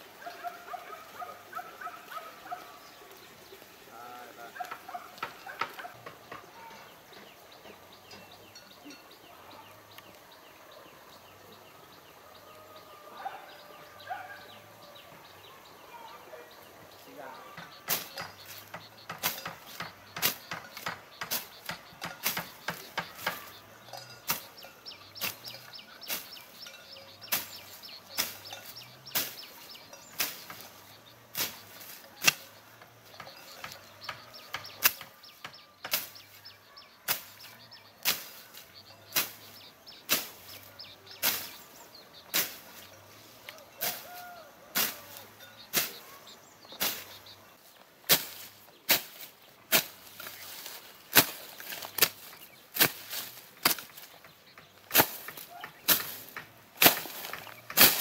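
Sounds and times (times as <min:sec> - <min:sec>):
blade chopping weeds: 0:17.7 - 0:23.6, 0:24.2 - 0:42.9, 0:43.8 - 0:47.4, 0:48.0 - 0:58.0.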